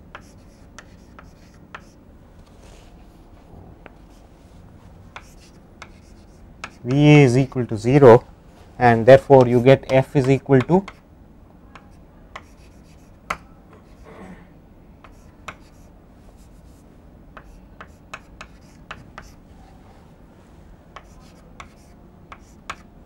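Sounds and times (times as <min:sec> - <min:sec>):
chalk tapping and scratching: 0:00.1 - 0:02.0, 0:05.1 - 0:07.6, 0:09.3 - 0:11.0, 0:11.8 - 0:14.0, 0:15.0 - 0:16.8, 0:17.4 - 0:19.4, 0:21.0 - 0:22.9.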